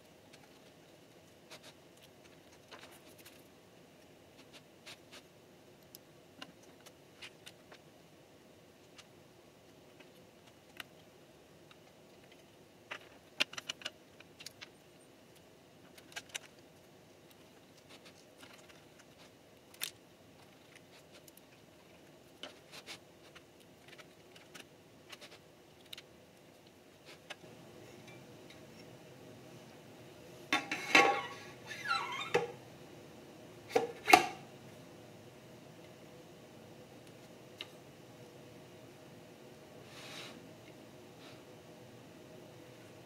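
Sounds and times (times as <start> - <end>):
metal casing clatter and scrape: 30.5 - 31.4.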